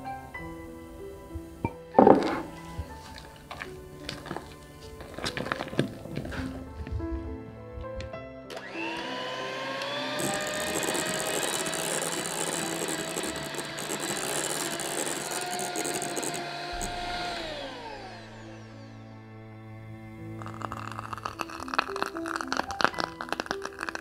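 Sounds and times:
electric hand mixer whining: 0:08.5 - 0:24.0.

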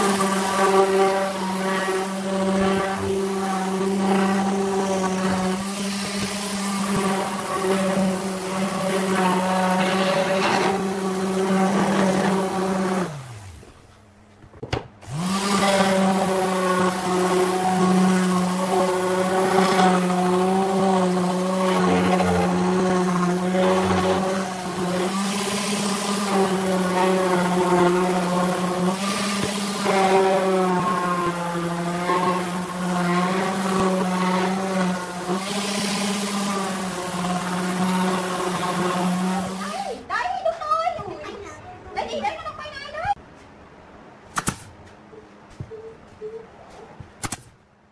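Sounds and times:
orbital sander running: 0:00.0 - 0:13.8, 0:15.0 - 0:40.0.

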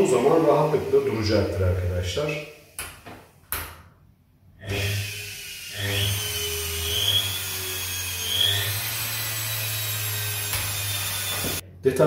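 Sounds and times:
electric motor running with whine: 0:00.0 - 0:02.1, 0:04.7 - 0:11.6.

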